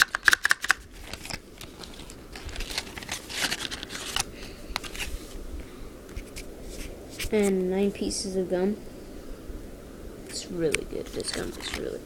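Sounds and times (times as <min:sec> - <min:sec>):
cardboard box rustling: 0:00.8 - 0:05.4, 0:11.0 - 0:12.0.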